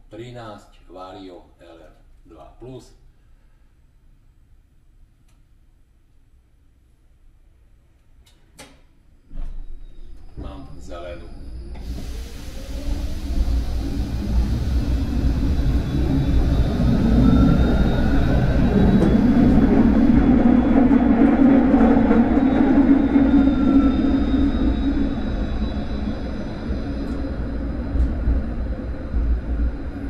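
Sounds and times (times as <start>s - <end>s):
tram traction whine: 9.4s - 30.0s
wheels rumbling on rails: 11.5s - 30.0s.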